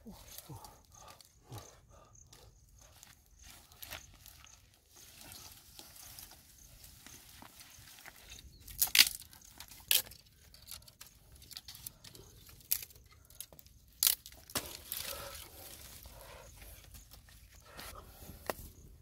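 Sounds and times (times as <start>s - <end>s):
twigs rustling: 2.3s - 18.8s
sticks snapping: 8.6s - 15.5s.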